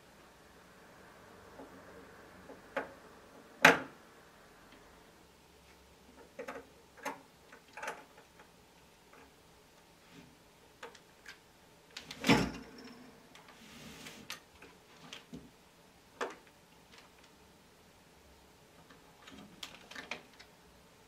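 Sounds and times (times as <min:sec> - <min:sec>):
small clicks and knocks: 0:06.1 - 0:08.5, 0:10.8 - 0:13.6, 0:18.8 - 0:20.6.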